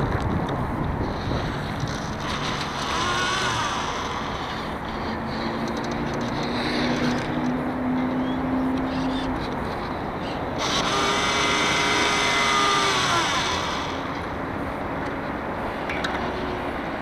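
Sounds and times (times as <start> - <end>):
wind on microphone: 0.0 - 7.8.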